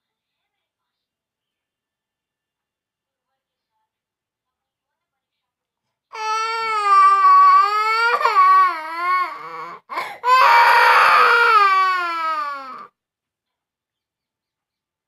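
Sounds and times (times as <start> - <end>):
toddler crying in wails: 6.2 - 12.9
gasping breath: 9.3 - 10.3.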